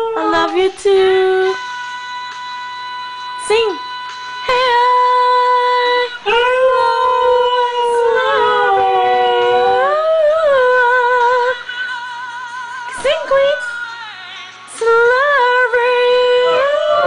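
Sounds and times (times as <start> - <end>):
woman singing: 0.0 - 17.0
dog howling: 6.3 - 10.7, 16.3 - 17.0.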